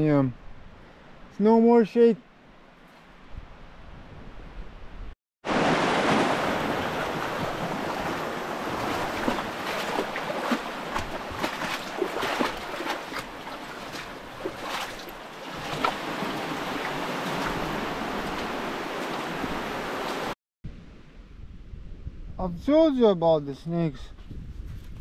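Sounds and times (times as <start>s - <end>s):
sea waves washing onto shore: 5.4s - 20.4s.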